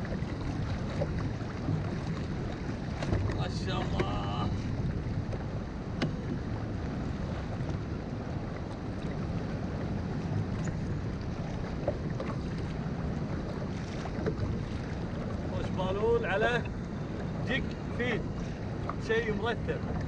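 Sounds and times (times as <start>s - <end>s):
water slapping: 0.0s - 20.0s
wind buffeting microphone: 0.0s - 20.0s.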